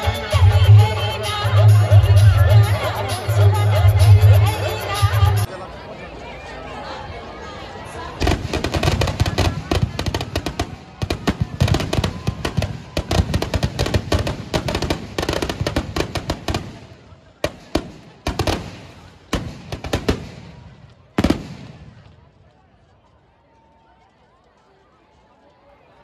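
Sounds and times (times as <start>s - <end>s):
firecrackers cracking and banging: 8.2s - 22.3s.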